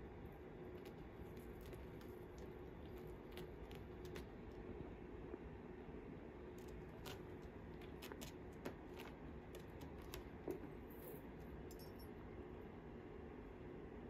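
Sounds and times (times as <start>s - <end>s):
steady low hum: 0.0s - 14.0s
kitten claws scratching: 0.6s - 4.7s, 6.5s - 10.8s.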